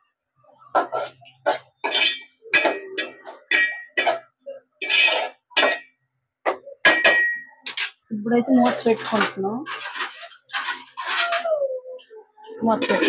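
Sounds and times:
ladle scraping metal pot: 0:00.7 - 0:11.6, 0:12.6 - 0:13.0.

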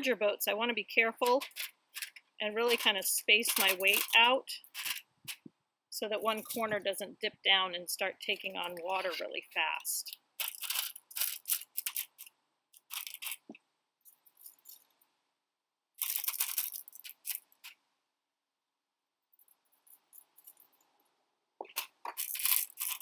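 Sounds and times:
glass gemstones clinking: 0:10.4 - 0:12.3.

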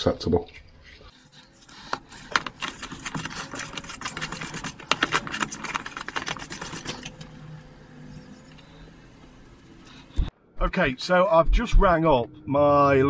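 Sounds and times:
brush scrubbing metal: 0:01.1 - 0:07.0.

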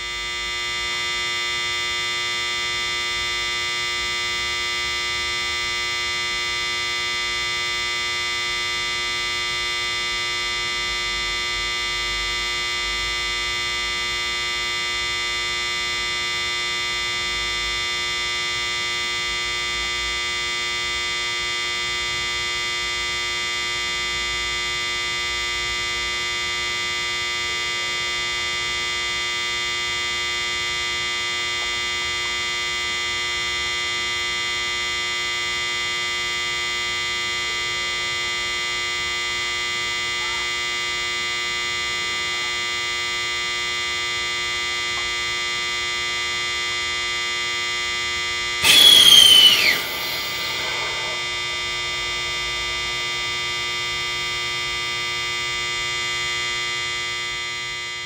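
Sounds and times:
steady electronic whine: 0:48.6 - 0:52.9.

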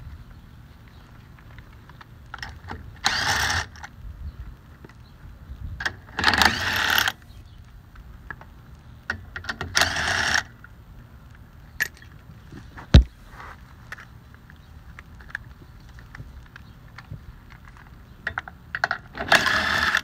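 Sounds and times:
impact driver loosening lug nuts: 0:02.4 - 0:03.8, 0:06.1 - 0:07.2, 0:09.4 - 0:10.5, 0:18.8 - 0:20.0.

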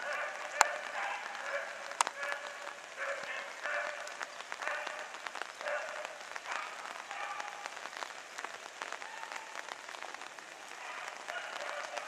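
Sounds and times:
hounds baying: 0:00.0 - 0:07.7, 0:10.8 - 0:12.0
crackling hiss: 0:00.0 - 0:12.0.

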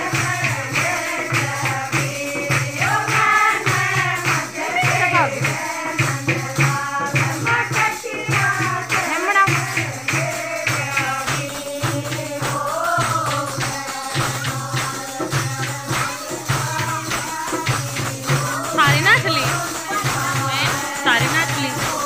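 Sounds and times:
jingling percussion: 0:00.0 - 0:22.0
rhythmic hand clapping: 0:00.0 - 0:22.0
women singing folk song: 0:00.0 - 0:22.0
low drum beat: 0:13.1 - 0:22.0.

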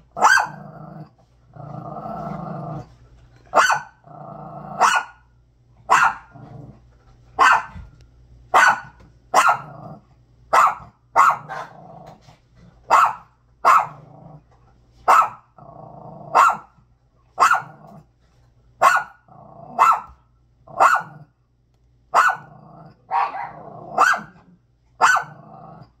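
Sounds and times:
small dog barking: 0:00.2 - 0:00.6, 0:03.5 - 0:04.0, 0:04.7 - 0:05.2, 0:05.9 - 0:06.4, 0:07.4 - 0:07.8, 0:08.5 - 0:09.9, 0:10.5 - 0:11.8, 0:12.9 - 0:14.0, 0:15.0 - 0:15.6, 0:16.3 - 0:16.7, 0:17.4 - 0:17.9, 0:18.8 - 0:21.3, 0:22.1 - 0:24.4, 0:25.0 - 0:25.5
dog growling: 0:00.4 - 0:03.0, 0:04.0 - 0:04.9, 0:06.2 - 0:06.9, 0:11.4 - 0:12.7, 0:13.8 - 0:14.5, 0:15.6 - 0:16.4, 0:19.3 - 0:19.8, 0:22.4 - 0:24.6, 0:25.2 - 0:26.0.

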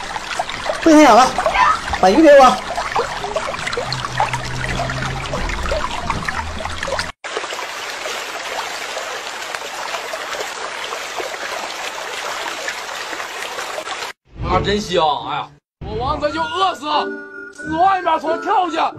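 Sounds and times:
babbling stream: 0:00.0 - 0:14.2.

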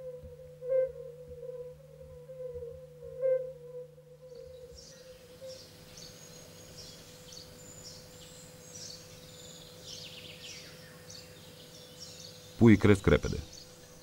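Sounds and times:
faint steady hum: 0:00.0 - 0:14.0
birds chirping: 0:04.2 - 0:14.0.

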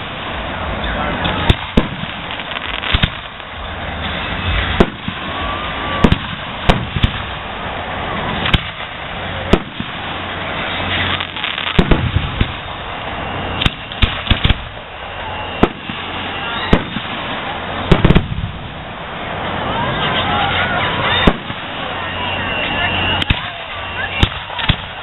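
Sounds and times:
firework shells bursting: 0:00.0 - 0:07.6, 0:08.2 - 0:18.6, 0:23.2 - 0:25.0
steady background hiss: 0:00.0 - 0:25.0.

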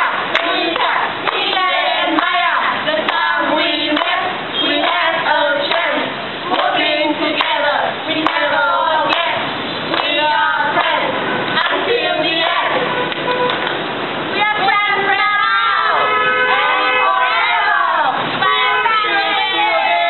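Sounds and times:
group singing in unison: 0:00.0 - 0:13.0, 0:14.4 - 0:20.0
hands clapping: 0:00.3 - 0:02.4, 0:03.0 - 0:03.3, 0:03.9 - 0:04.2, 0:07.4 - 0:07.6, 0:08.2 - 0:08.5, 0:09.1 - 0:10.2, 0:13.1 - 0:13.8.

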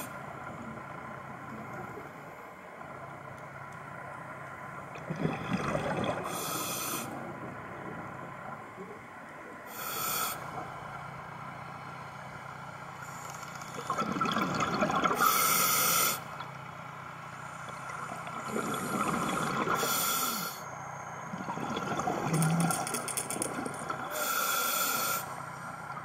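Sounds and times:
rushes of bubbles: 0:04.8 - 0:08.7, 0:13.7 - 0:15.4, 0:17.6 - 0:20.0, 0:21.3 - 0:24.2
hissing regulator breaths: 0:06.3 - 0:07.2, 0:09.7 - 0:10.5, 0:18.4 - 0:20.7, 0:24.1 - 0:25.8.

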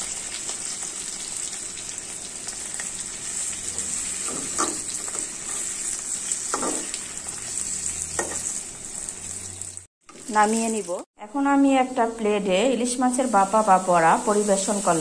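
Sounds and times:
fish sizzling in oil: 0:00.0 - 0:11.1, 0:13.1 - 0:15.0
metal spatula scraping pan: 0:03.7 - 0:08.6.

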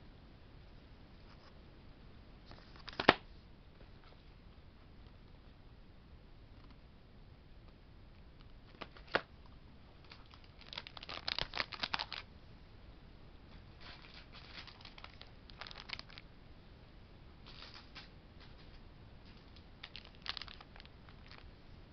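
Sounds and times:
plastic packaging crinkling: 0:08.7 - 0:09.3, 0:10.0 - 0:12.3, 0:13.8 - 0:16.2, 0:19.3 - 0:21.5.

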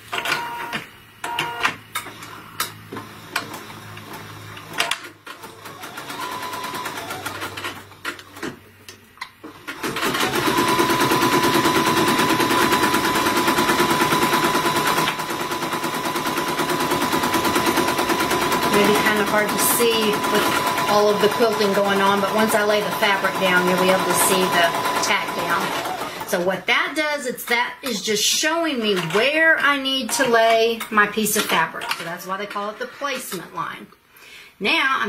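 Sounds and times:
embroidery machine stitching: 0:02.9 - 0:08.6, 0:09.4 - 0:26.5, 0:28.7 - 0:32.1.

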